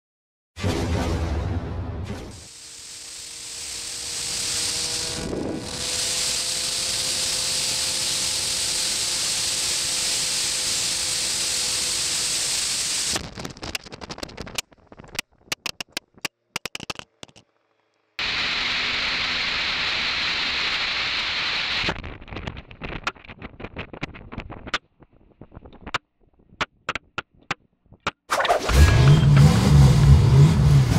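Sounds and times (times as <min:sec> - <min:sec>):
choppy crackles and clicks: 0:13.1 - 0:17.5, 0:21.8 - 0:28.2.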